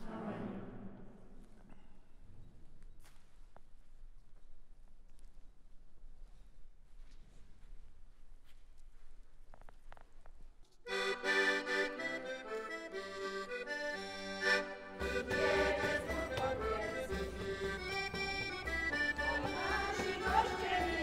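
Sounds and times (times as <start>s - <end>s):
piano accordion folk tune: 10.9s - 21.0s.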